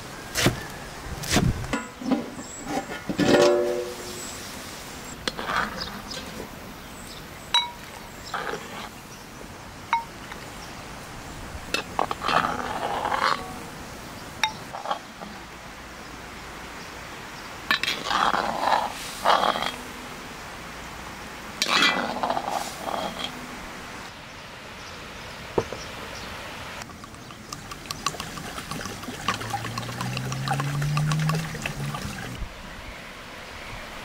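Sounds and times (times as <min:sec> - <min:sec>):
scraping and rustling: 0:01.3 - 0:04.4, 0:05.2 - 0:06.6, 0:21.6 - 0:23.4
cookware clinking: 0:03.2 - 0:04.1, 0:07.6 - 0:07.9.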